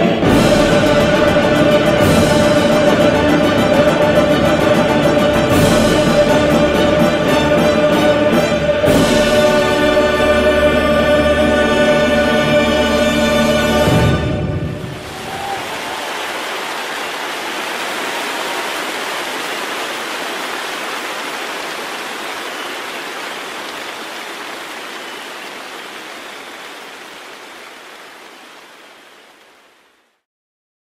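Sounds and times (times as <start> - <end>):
steady rushing hiss: 15.1 - 30.2.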